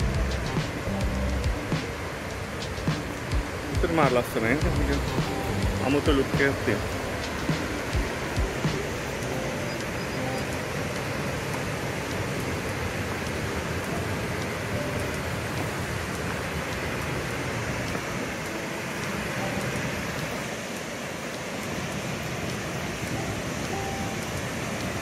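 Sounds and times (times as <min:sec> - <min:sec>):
waterfall rushing: 0:00.0 - 0:25.0
white water on river: 0:00.0 - 0:25.0.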